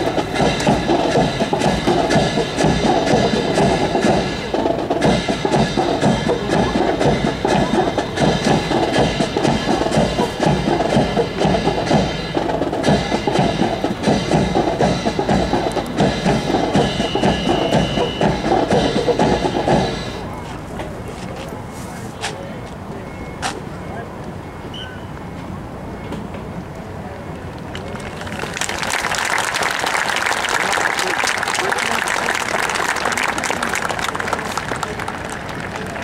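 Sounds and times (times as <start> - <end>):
high steady tone: 0.0 - 20.7
marching drum cadence: 0.0 - 22.4.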